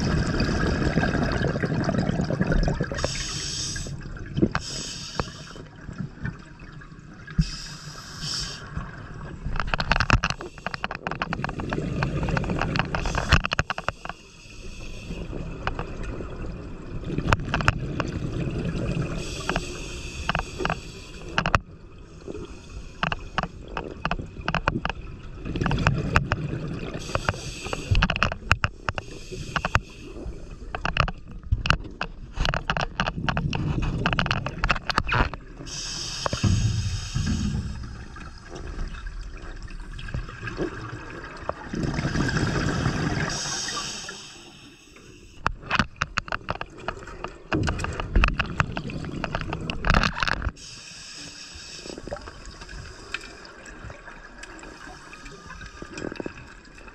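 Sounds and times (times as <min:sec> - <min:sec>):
exhaled bubbles gushing underwater: 0:00.0 - 0:04.6, 0:15.2 - 0:19.5, 0:35.4 - 0:44.2
regulator hissing inhalations: 0:03.0 - 0:04.0, 0:04.6 - 0:05.6, 0:07.4 - 0:08.7, 0:19.2 - 0:21.4, 0:27.0 - 0:28.0, 0:28.9 - 0:30.5, 0:35.7 - 0:38.0, 0:43.2 - 0:45.4, 0:50.6 - 0:52.0
sharp clicks and crackles: 0:09.5 - 0:16.2, 0:17.1 - 0:18.3, 0:19.2 - 0:21.7, 0:22.4 - 0:39.2, 0:45.0 - 0:50.6.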